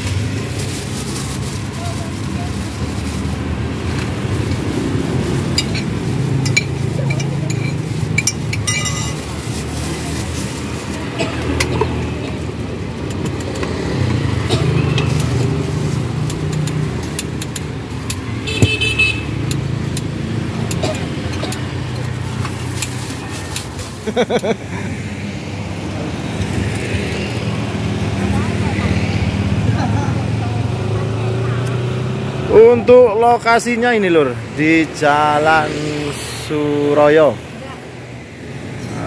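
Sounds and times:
plastic bags rustling: 0.0 - 11.6, 22.1 - 24.5
road traffic rumble: 0.0 - 39.0.

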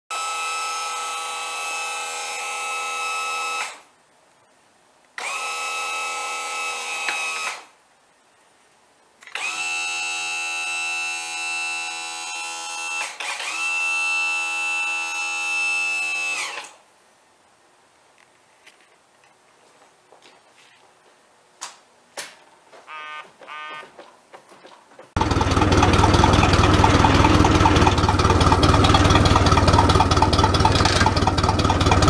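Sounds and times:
electric trim pump motor whining: 0.1 - 3.8, 5.2 - 7.6, 9.2 - 16.8, 25.2 - 32.0.

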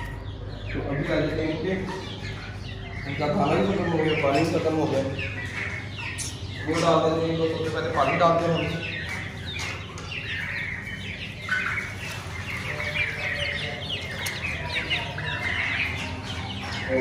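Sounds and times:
chicks peeping: 0.0 - 17.0.

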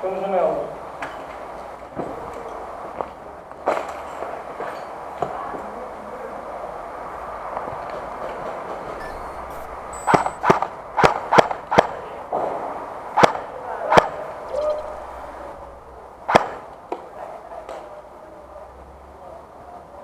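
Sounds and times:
airsoft rifle shots: 9.5 - 12.1, 13.2 - 15.0, 16.3 - 16.7.

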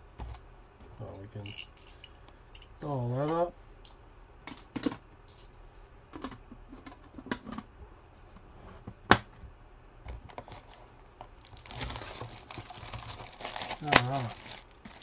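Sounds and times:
cardboard box rustling: 11.4 - 15.0.

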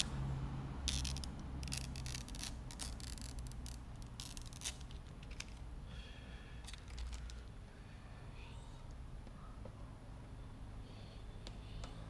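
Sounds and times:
low steady hum: 0.0 - 12.0
plastic film crackling: 0.9 - 5.6.

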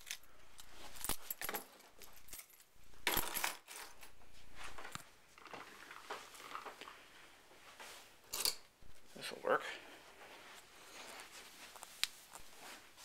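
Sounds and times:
small metal tools clinking: 0.0 - 4.2, 8.3 - 8.7
rustling handling noise: 0.0 - 13.0.

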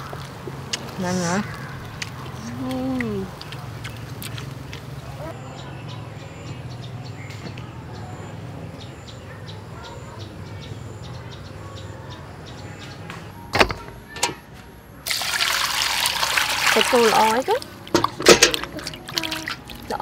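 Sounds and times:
water running into bowl: 15.1 - 20.0.

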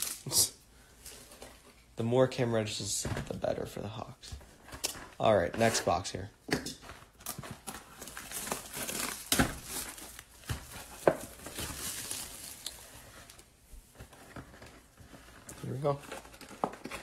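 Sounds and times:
plastic wrap tearing and crumpling: 0.0 - 0.4, 7.1 - 13.4.

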